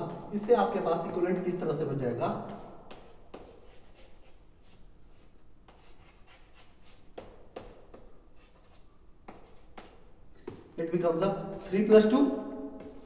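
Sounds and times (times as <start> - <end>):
chalk scratching on blackboard: 2.5 - 10.1, 12.8 - 13.0
chalk tapping: 2.5 - 10.7, 12.8 - 13.0.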